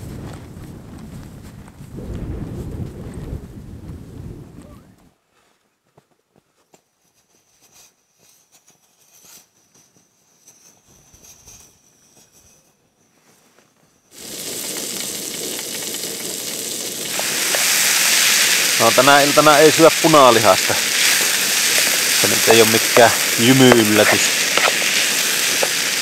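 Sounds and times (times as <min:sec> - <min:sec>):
fat sizzling in a frying pan: 0:14.1 - 0:26.0
handling clicks and rustles: 0:20.4 - 0:26.0.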